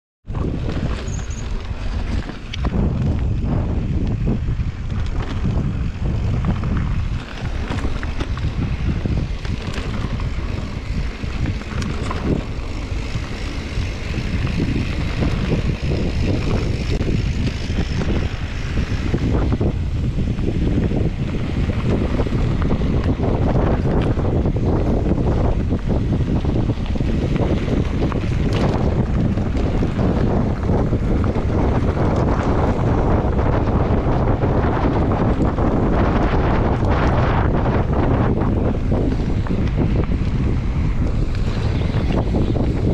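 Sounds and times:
wind buffeting microphone: 0.2 - 42.9
bike clicks and rattles: 0.3 - 42.9
tyres rolling on gravel: 0.4 - 42.9.

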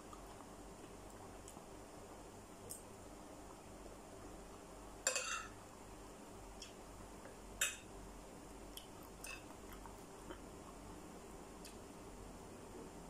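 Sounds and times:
metal spoon clinking on plate: 5.1 - 5.6.

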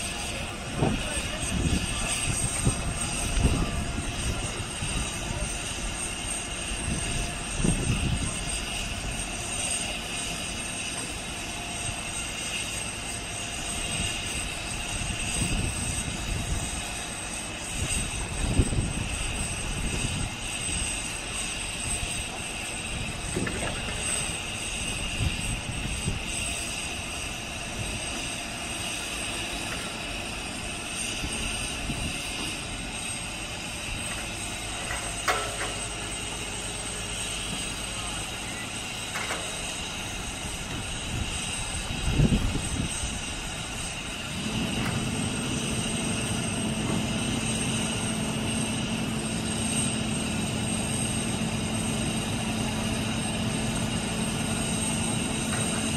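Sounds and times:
crane engine and hydraulics running: 0.0 - 55.9
high whine: 17.7 - 55.9.

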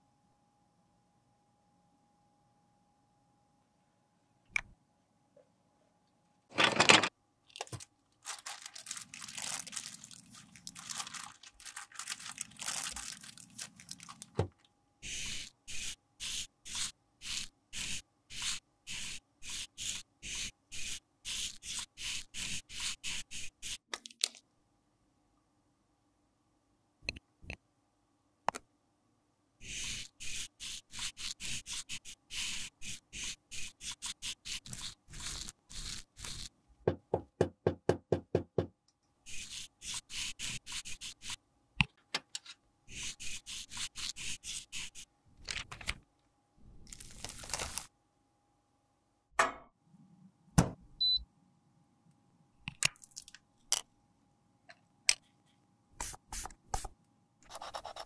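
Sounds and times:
brush scraping powder: 15.0 - 23.8, 29.6 - 36.5, 39.3 - 41.4, 42.9 - 45.1
tools knocking and clicking: 49.4 - 49.7.

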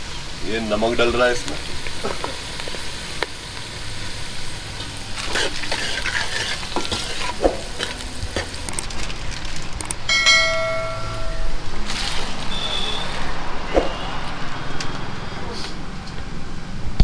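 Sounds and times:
spices frying in oil: 0.0 - 10.1
spoon scraping pot: 5.3 - 8.6
steady pitched tone: 10.1 - 11.8.

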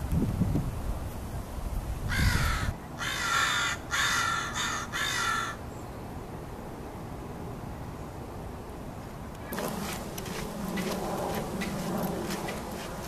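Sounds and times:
crows cawing: 2.1 - 5.6.

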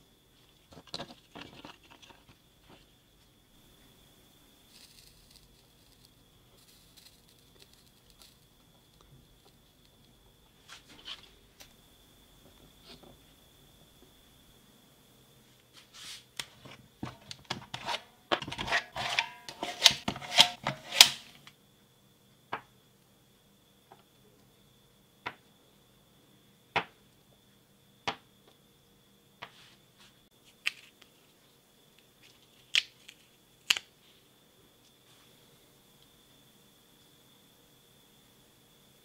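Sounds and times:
faint high whine: 0.0 - 39.0
battery cells clicking and knocking: 4.7 - 10.4.

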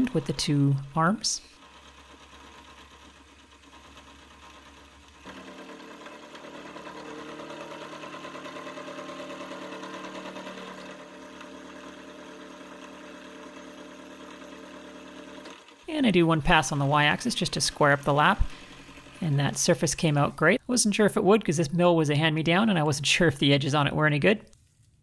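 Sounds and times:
milling machine cutting metal: 1.6 - 19.6.

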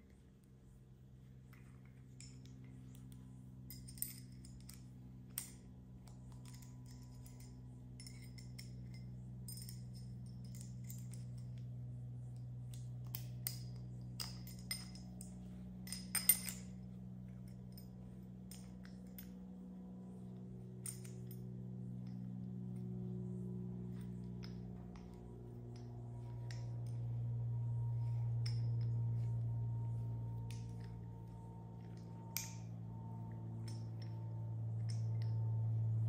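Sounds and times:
low electrical hum: 0.0 - 36.0
metal parts clinking: 1.5 - 11.7, 12.7 - 19.6, 20.8 - 22.3, 28.0 - 35.6.

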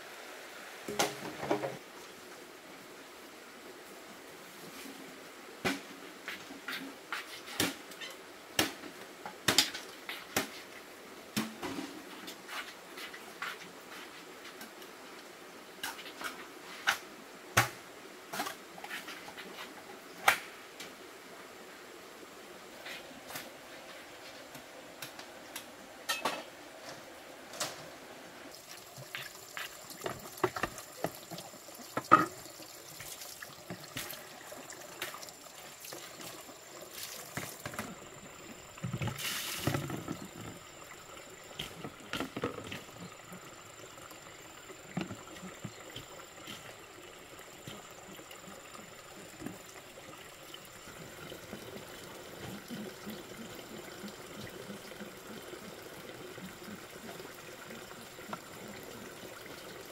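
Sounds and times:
water splashing: 28.5 - 59.9.

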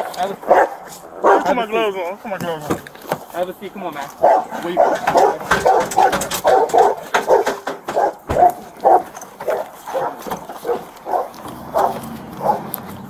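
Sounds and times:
dog barking: 0.0 - 1.6, 4.2 - 12.8.

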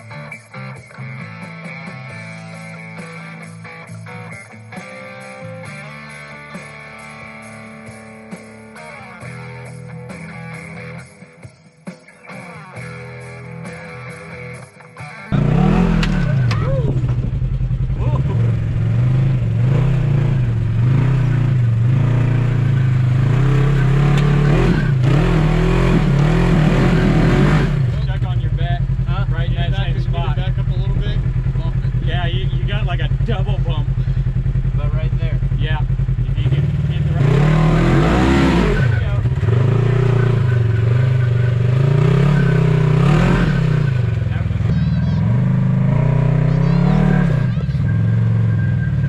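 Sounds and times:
engine revving under load: 15.3 - 49.0
engine throttle blips: 15.3 - 49.0.

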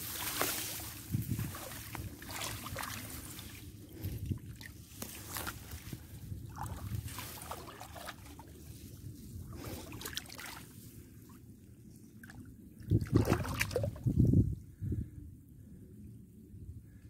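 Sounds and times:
water splashes: 0.0 - 5.9, 6.5 - 8.6, 9.5 - 10.8, 12.2 - 14.2
water sloshing from wading: 0.0 - 14.2.

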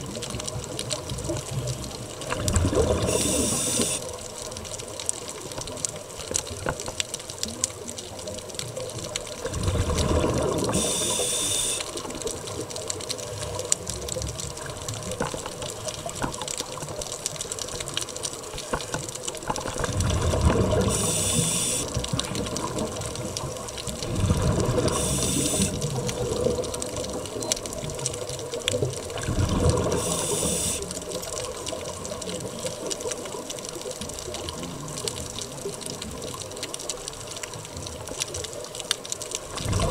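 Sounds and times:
exhaled bubbles rumbling: 0.0 - 39.9
steady underwater wash: 0.0 - 39.9
regulator inhalation hiss: 3.1 - 4.1, 10.7 - 11.9, 20.9 - 22.0, 24.9 - 25.8, 29.9 - 30.9.

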